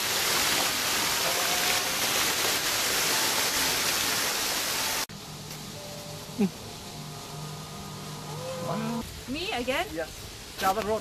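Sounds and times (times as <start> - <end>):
stream water rushing: 0.0 - 5.1.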